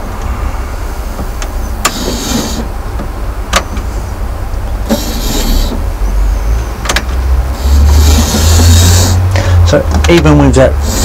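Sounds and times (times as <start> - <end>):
model train motor whirring: 1.8 - 2.7, 4.9 - 5.8, 7.6 - 9.2, 10.8 - 11.0.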